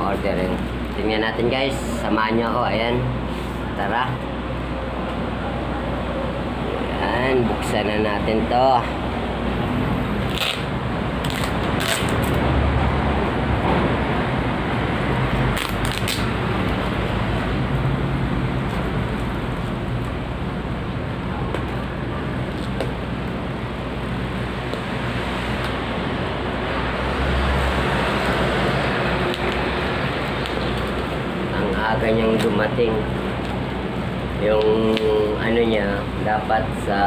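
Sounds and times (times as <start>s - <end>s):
bubble wrap crackling: 10.2s - 12.4s, 15.5s - 16.3s.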